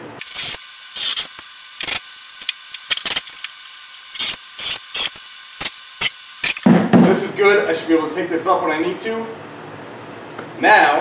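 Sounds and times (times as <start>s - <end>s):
cordless drill driving screws: 0.2s - 3.5s, 4.2s - 6.6s.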